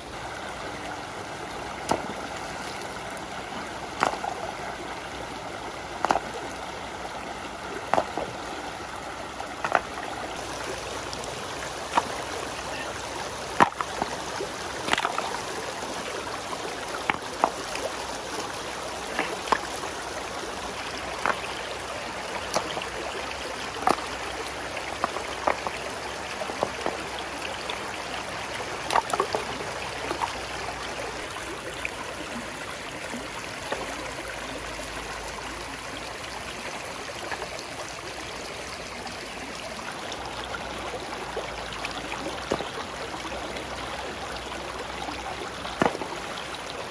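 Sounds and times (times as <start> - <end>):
stream running over rocks: 0.0 - 46.9
stones knocking and splashing: 1.8 - 3.2, 3.8 - 4.6, 5.9 - 6.7, 7.7 - 8.7, 9.3 - 31.6, 33.5 - 34.1, 41.8 - 43.7, 45.4 - 46.7.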